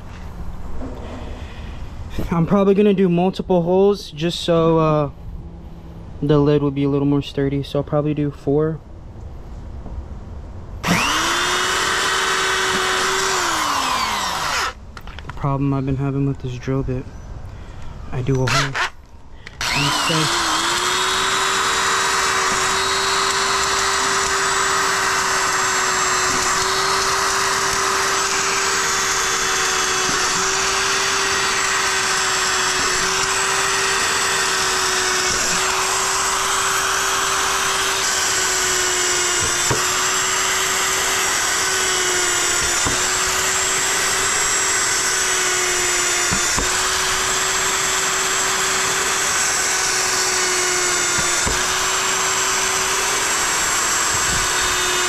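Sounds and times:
electric drill running: 0:10.8 - 0:14.8, 0:18.5 - 0:55.0.

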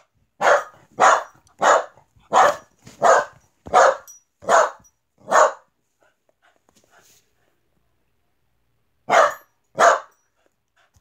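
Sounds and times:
dog-like barking: 0:00.4 - 0:05.7, 0:09.1 - 0:10.1.

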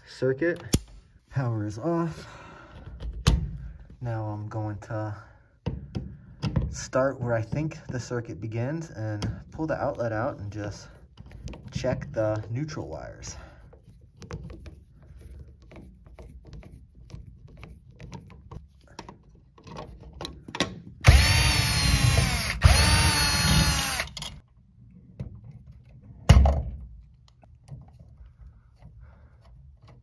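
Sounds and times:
cordless power driver whining: 0:21.0 - 0:24.4.

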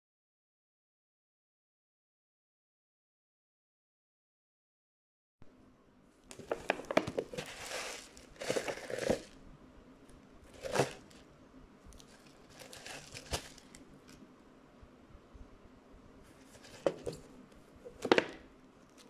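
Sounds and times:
packaging crinkling: 0:06.3 - 0:09.4, 0:10.5 - 0:11.3, 0:11.9 - 0:14.2, 0:16.4 - 0:17.2.

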